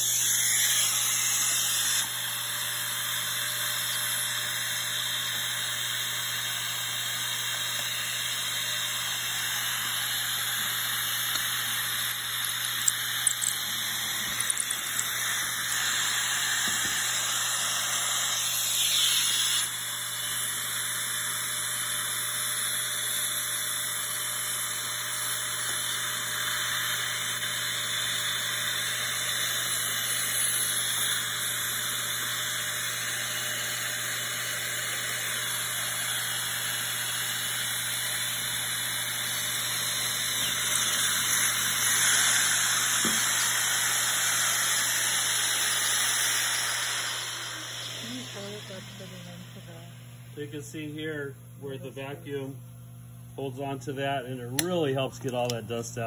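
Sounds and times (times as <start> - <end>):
dust extractor suction hissing: 3.7 - 20.7, 25.4 - 49.7.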